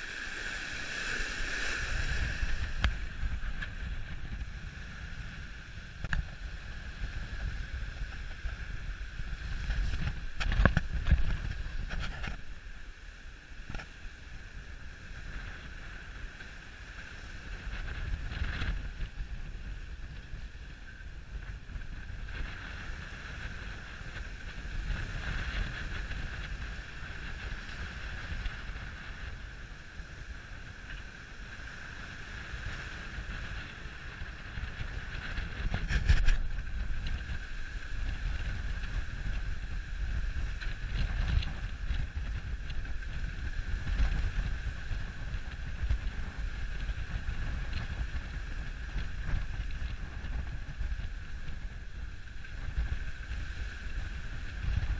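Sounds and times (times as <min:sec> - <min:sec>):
high-pitched whine: 0:00.0 - 0:13.0
wind buffeting microphone: 0:00.0 - 0:54.9.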